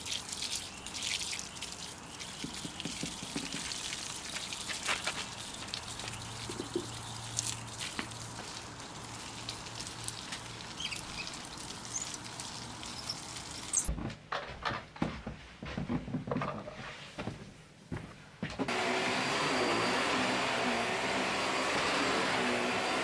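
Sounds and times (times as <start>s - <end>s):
hose water spattering: 0.0s - 13.9s.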